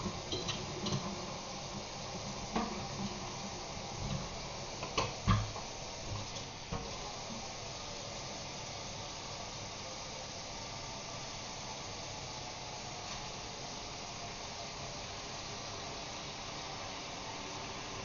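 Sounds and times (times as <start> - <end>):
tap running into metal sink: 4.0 - 6.9
knocks and clatters at sink: 4.8 - 5.6.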